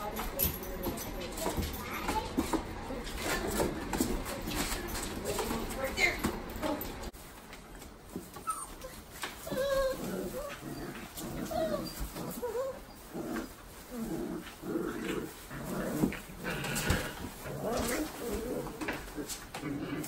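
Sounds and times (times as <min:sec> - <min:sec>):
puppies whining and yipping: 0:08.2 - 0:13.7.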